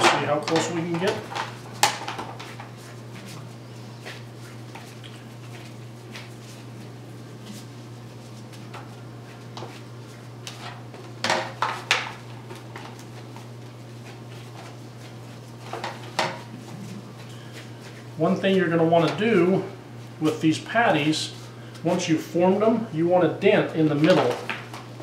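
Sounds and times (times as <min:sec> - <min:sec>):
foil pans crinkling clatter: 0:00.0 - 0:03.4, 0:08.6 - 0:19.6, 0:23.9 - 0:25.0
foil pans tapping and rustling: 0:00.0 - 0:03.4, 0:08.6 - 0:19.6, 0:23.9 - 0:25.0
steady low hum: 0:00.0 - 0:25.0.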